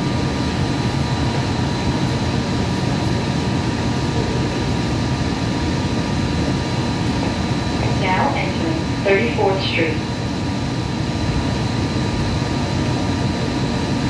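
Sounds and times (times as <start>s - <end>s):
thin steady whines: 0.0s - 14.0s.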